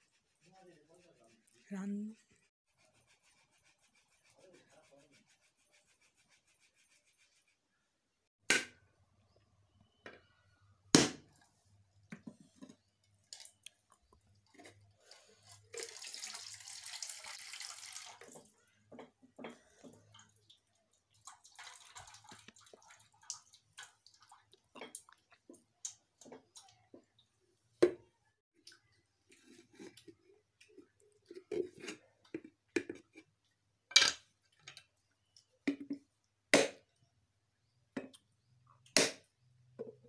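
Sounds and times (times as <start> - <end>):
water pouring into metal bowl: 15.2 - 18.6, 20.1 - 24.6.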